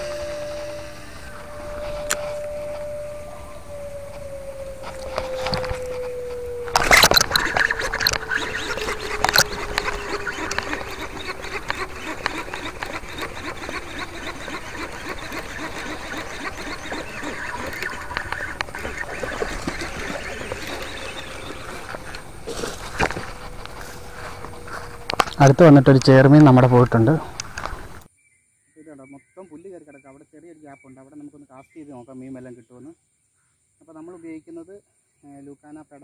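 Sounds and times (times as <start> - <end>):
fishing reel clicking rattle: 6.7 - 22.2.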